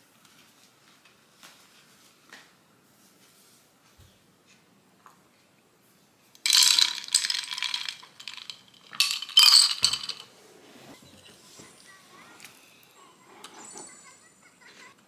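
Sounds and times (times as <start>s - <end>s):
ice cubes clinking in a glass: 6.4s - 10.3s.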